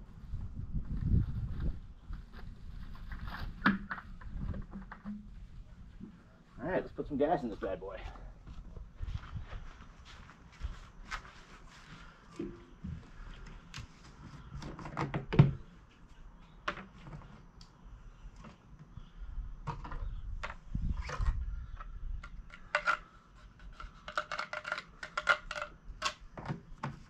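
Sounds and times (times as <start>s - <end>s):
plastic cap clicks and rattles: 22.2s - 23.0s, 23.7s - 26.2s.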